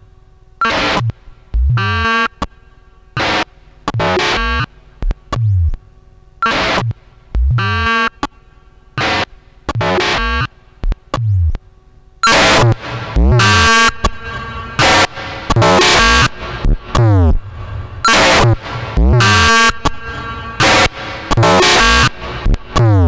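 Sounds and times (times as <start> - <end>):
chopped synthesizer bursts: 3.2 - 4.7, 12.2 - 23.0
low tone dropping in pitch: 12.7 - 21.5.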